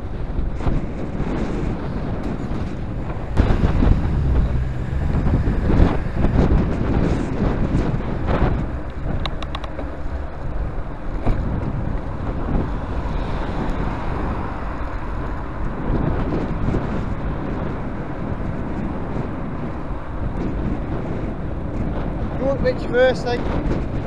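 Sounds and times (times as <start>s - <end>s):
road traffic: 0.0s - 24.0s
wind on microphone: 0.0s - 24.0s
sharp clicks: 8.9s - 9.9s.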